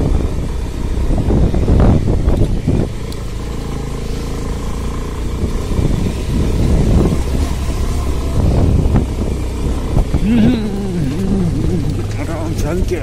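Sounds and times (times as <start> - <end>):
motorcycle engine running: 0.0 - 13.0
tyres rumbling on gravel: 0.0 - 13.0.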